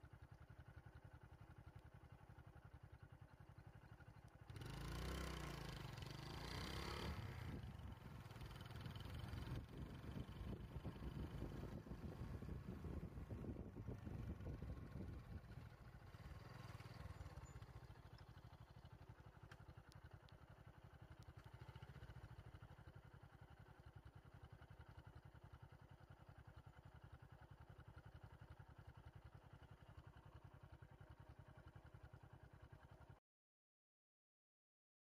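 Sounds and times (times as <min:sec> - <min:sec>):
vehicle engine idling: 0:00.0 - 0:33.2.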